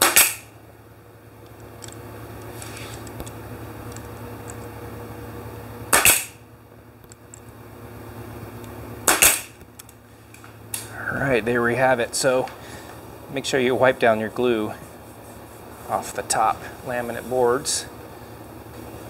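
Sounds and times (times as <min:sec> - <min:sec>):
pneumatic stapler firing: 0:00.0 - 0:00.5, 0:05.9 - 0:06.4, 0:09.0 - 0:09.6.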